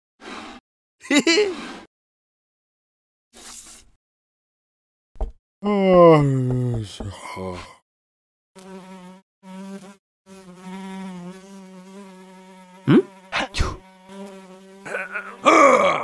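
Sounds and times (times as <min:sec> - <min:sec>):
housefly buzzing: 0:08.6 - 0:15.5.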